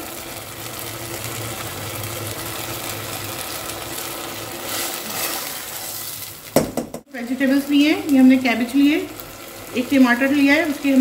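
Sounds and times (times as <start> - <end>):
chicken sizzling in a pan: 0.0 - 11.0
spatula stirring: 4.5 - 6.9.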